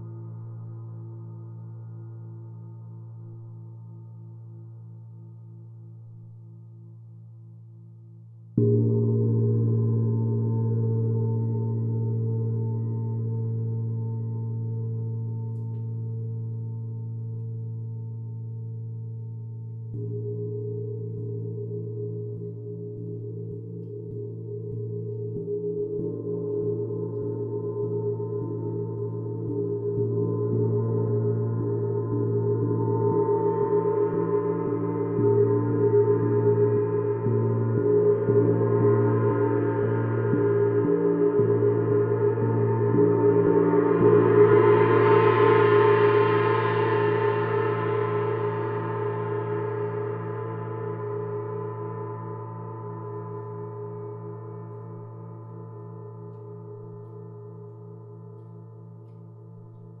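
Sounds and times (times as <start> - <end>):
gong shimmering: 28.2 - 55.1.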